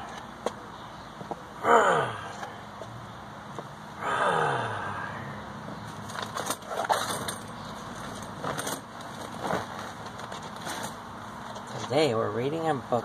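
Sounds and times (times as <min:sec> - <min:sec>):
steady background hum: 0:00.0 - 0:13.0
rustling in a camp chair: 0:05.9 - 0:12.1.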